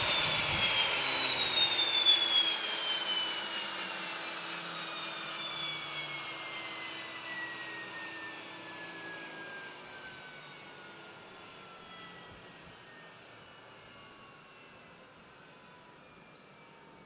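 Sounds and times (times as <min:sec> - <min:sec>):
turboprop engine spooling down: 0:00.0 - 0:17.0.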